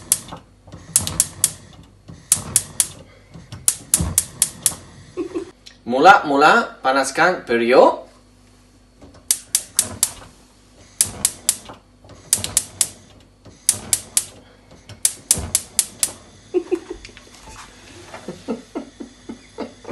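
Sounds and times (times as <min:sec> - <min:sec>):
gas hob igniter clicking: 0:00.0 - 0:04.9, 0:09.0 - 0:10.2, 0:11.0 - 0:16.3.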